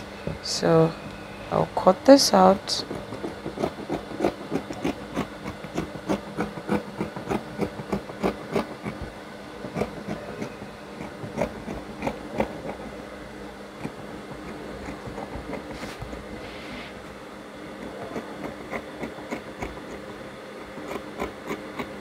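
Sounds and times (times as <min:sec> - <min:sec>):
scissors snipping fabric: 0:02.8 - 0:12.9, 0:13.8 - 0:16.3, 0:17.8 - 0:22.0.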